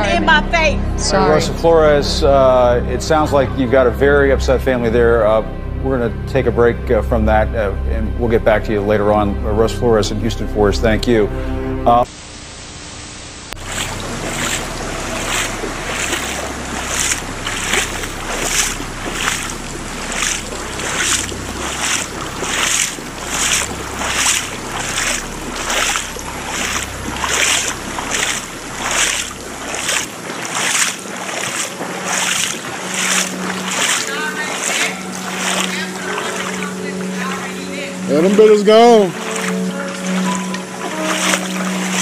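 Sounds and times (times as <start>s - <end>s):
footsteps splashing through water: 13.6s - 42.0s.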